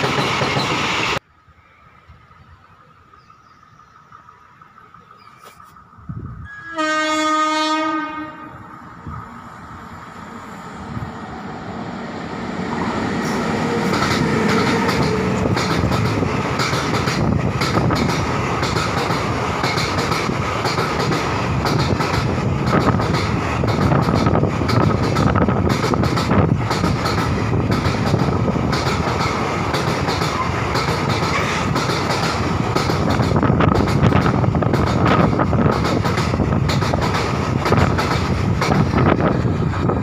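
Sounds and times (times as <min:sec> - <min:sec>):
train rumble passing: 0:00.0 - 0:01.2, 0:02.3 - 0:40.0
locomotive horn blast: 0:06.5 - 0:08.8.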